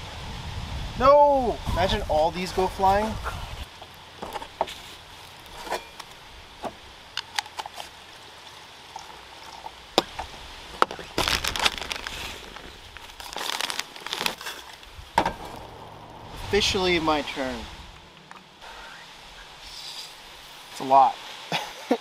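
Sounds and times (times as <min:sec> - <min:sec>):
bag crinkling: 0:11.0 - 0:15.7.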